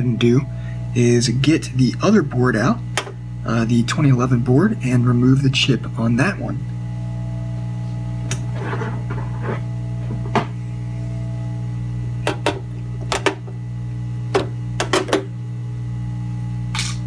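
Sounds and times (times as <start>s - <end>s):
steady low hum: 0.0s - 17.0s
circuit board clicks and knocks: 12.3s - 13.4s, 14.3s - 15.3s.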